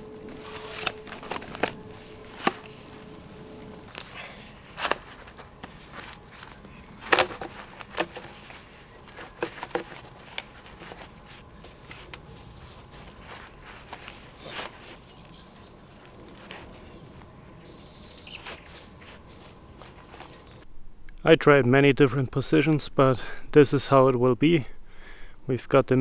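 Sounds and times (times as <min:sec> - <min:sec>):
plastic pipes knocking and scraping: 0:00.4 - 0:02.7, 0:04.8 - 0:11.1.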